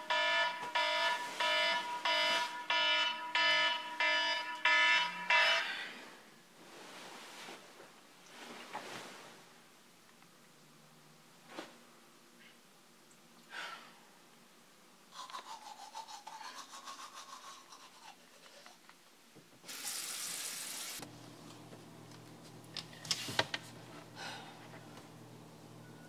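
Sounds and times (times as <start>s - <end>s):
toothbrush scrubbing teeth: 15.1s - 18.8s.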